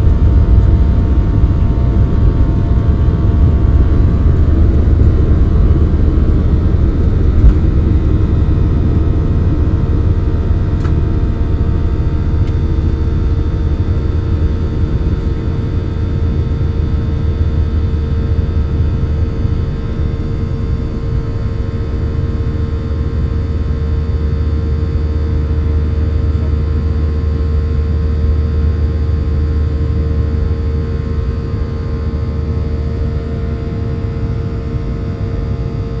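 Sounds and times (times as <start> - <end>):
jet engine rumble in cabin: 0.0 - 36.0.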